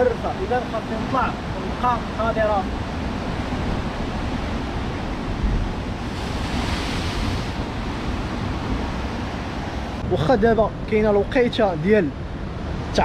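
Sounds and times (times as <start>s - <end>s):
wind rumbling on microphone: 0.0s - 13.0s
sea waves breaking on rocks: 0.4s - 10.0s.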